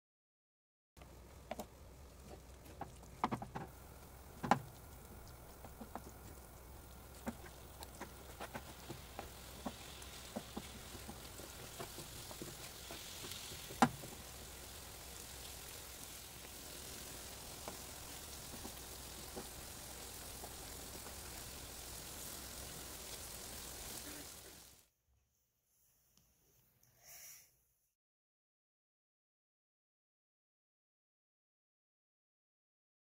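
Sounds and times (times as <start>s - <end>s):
faint sizzle: 1.0s - 24.9s
wooden spatula stirring in pan: 1.1s - 24.7s.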